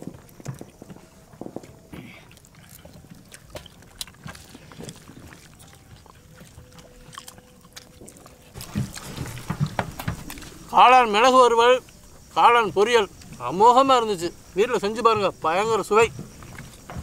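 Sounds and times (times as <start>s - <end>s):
crunching and chewing fried food: 0.0s - 10.8s, 13.1s - 13.5s, 15.8s - 17.0s.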